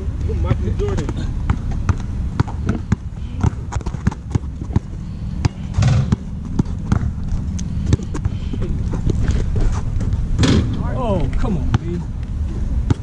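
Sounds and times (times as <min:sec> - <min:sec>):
basketball bouncing: 0:00.8 - 0:10.7.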